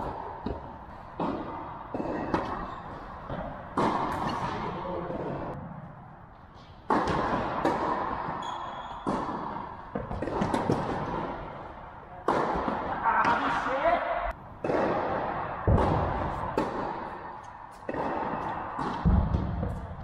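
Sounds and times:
tennis ball struck by rackets: 0.0s - 2.6s, 3.3s - 4.7s, 6.8s - 11.3s, 12.2s - 13.4s, 14.6s - 19.9s.

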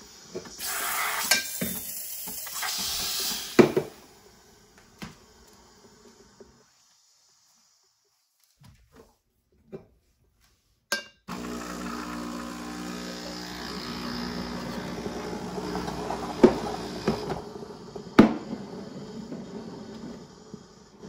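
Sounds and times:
steam hiss with whistling tone: 0.0s - 8.3s, 17.5s - 21.0s.

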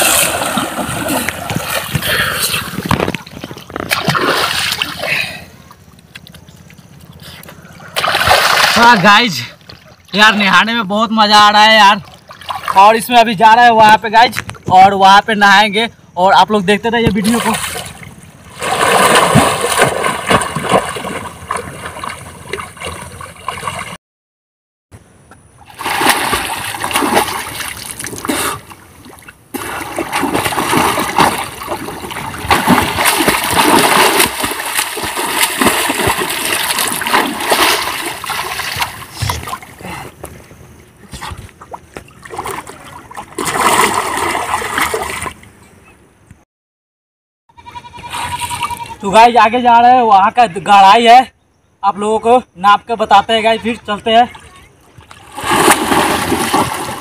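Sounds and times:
swimming strokes splashing water: 0.0s - 2.8s, 3.4s - 5.1s, 7.8s - 8.8s, 17.2s - 24.0s, 25.7s - 39.8s, 41.1s - 45.4s, 55.0s - 57.0s
waves sloshing: 0.0s - 5.0s, 17.4s - 24.0s, 25.7s - 39.8s, 41.2s - 45.4s, 55.1s - 57.0s.

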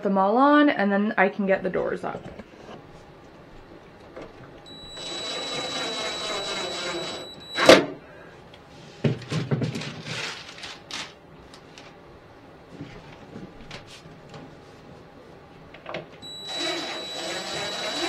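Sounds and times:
cordless driver whining: 4.7s - 7.8s, 16.2s - 18.0s.

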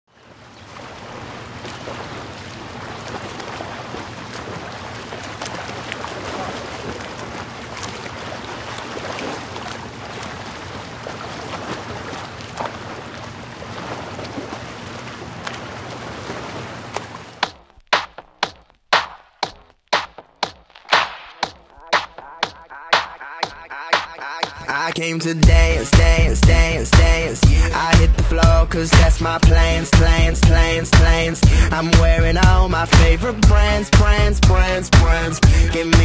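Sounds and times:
bubbling churning water: 0.1s - 17.9s.

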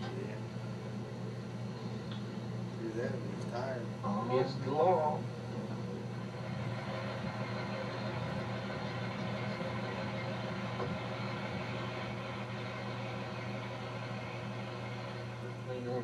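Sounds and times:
vehicle engine drone: 6.0s - 16.0s.

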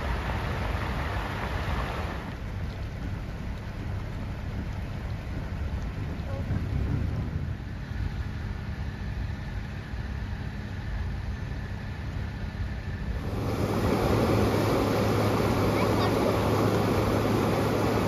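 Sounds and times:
rushing floodwater: 0.0s - 9.0s, 13.0s - 18.0s
car engine idling: 2.2s - 18.0s.

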